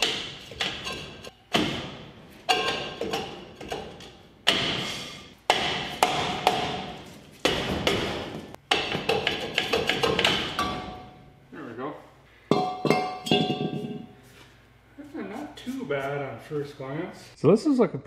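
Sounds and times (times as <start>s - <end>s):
hammer striking metal brake drum: 12.5s - 14.1s.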